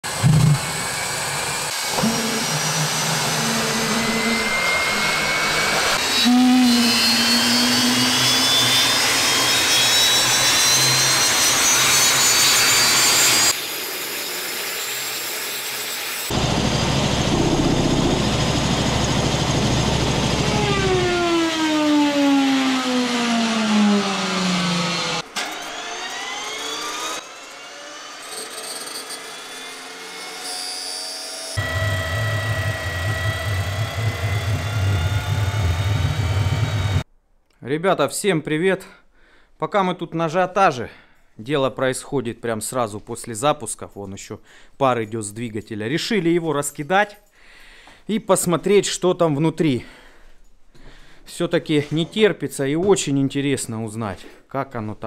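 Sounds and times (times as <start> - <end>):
helicopter turbine engine whine: 0.1 - 28.2, 29.3 - 37.0.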